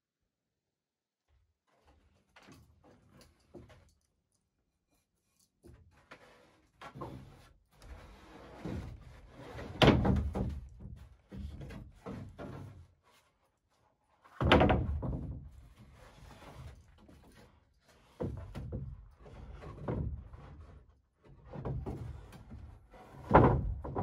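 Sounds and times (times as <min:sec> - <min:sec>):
knocks on wooden roof boards: 0:14.4 - 0:15.4, 0:23.3 - 0:24.0.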